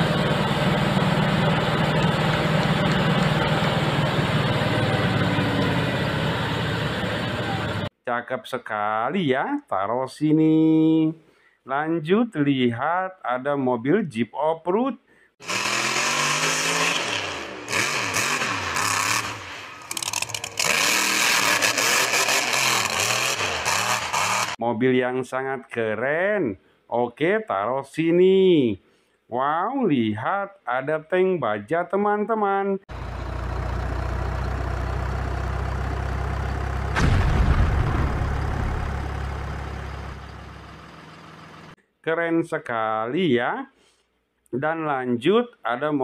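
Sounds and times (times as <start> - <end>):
diesel engine running with fast pulsing: 0.0 - 7.9, 15.4 - 24.6, 32.9 - 41.8
loud rush of noise: 37.0 - 40.5.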